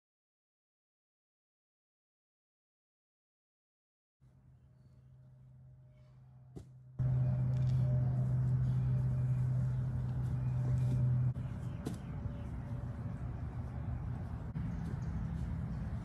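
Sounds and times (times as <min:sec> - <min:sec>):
motor humming: 0:07.0 - 0:16.0.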